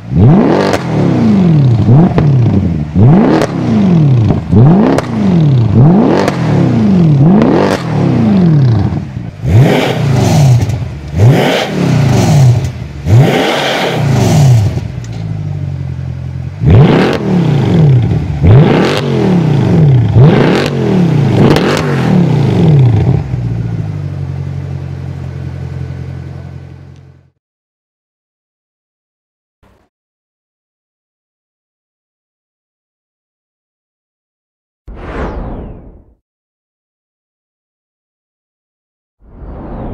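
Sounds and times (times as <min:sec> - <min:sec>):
car engine revving: 0:00.0 - 0:27.0
car engine idling: 0:08.4 - 0:27.3.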